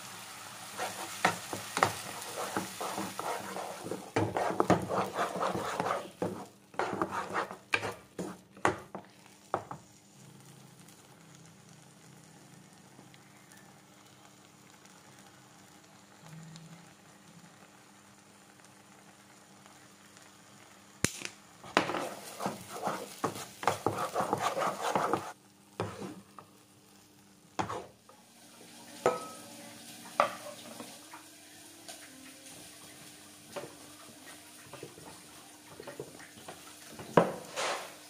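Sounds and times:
wooden spatula scraping a pan: 0:00.7 - 0:08.5, 0:21.6 - 0:26.3, 0:27.6 - 0:28.0, 0:37.1 - 0:38.0.

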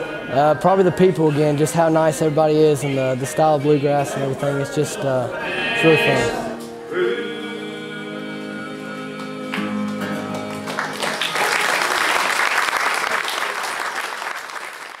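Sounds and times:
audience applause: 0:09.5 - 0:15.0.

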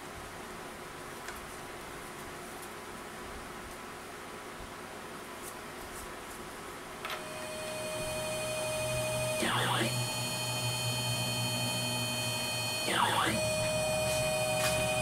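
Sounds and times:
router spindle running: 0:07.2 - 0:15.0
stepper motors whining: 0:07.2 - 0:15.0.

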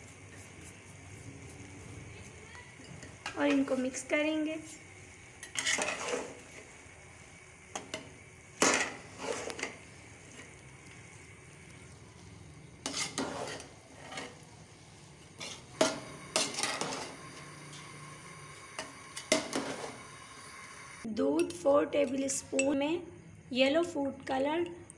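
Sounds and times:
metal spoons scraping a pot: 0:05.4 - 0:06.5, 0:08.6 - 0:09.8, 0:12.8 - 0:14.5, 0:15.4 - 0:17.8, 0:18.8 - 0:20.0.

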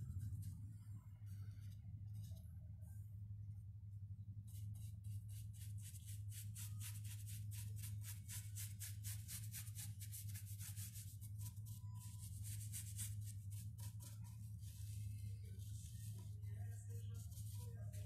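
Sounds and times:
low hum: 0:00.0 - 0:08.8, 0:11.2 - 0:18.0
paintbrush scrubbing on wood: 0:04.5 - 0:18.0.

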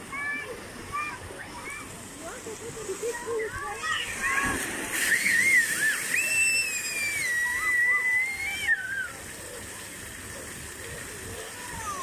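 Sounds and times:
fountain water splashing: 0:00.0 - 0:12.0
children squealing: 0:03.9 - 0:09.2.

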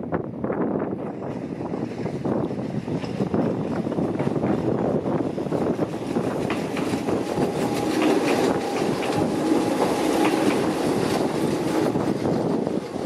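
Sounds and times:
electric train rumbling past: 0:00.0 - 0:13.0
train wheels clacking over rail joints: 0:02.8 - 0:13.0.

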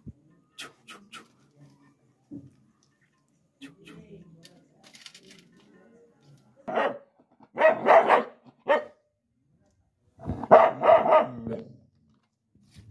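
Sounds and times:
dog barking: 0:06.7 - 0:09.0, 0:10.3 - 0:11.6.

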